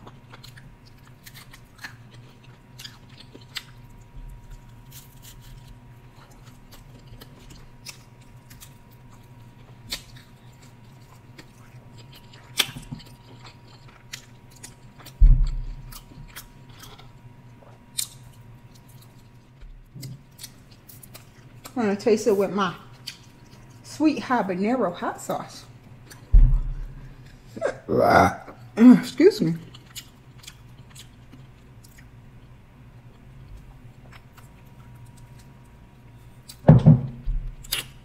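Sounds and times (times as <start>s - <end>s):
person chewing pizza: 0.0s - 21.8s, 22.8s - 23.8s, 25.7s - 28.8s, 29.6s - 38.0s
loud dull thump: 15.2s - 15.7s, 26.3s - 27.0s.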